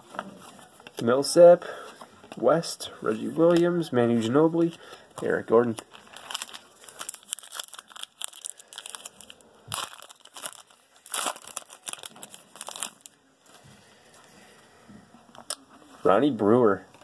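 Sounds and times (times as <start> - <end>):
foil wrapper crinkling and tearing: 4.7 - 13.2.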